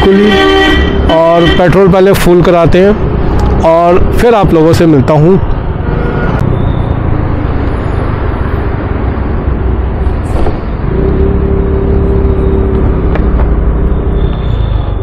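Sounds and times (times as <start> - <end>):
wind rushing over microphone: 7.6 - 11.3.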